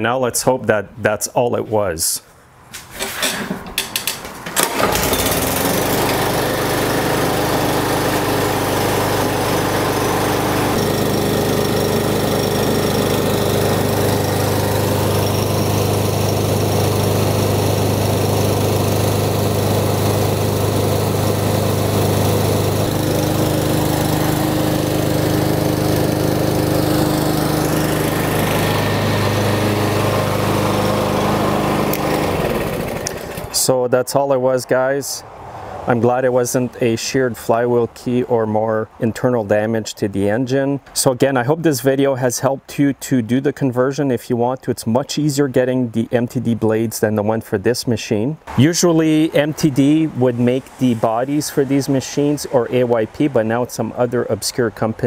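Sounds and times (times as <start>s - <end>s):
lawn mower engine running: 3.0s - 33.7s, 48.5s - 54.3s.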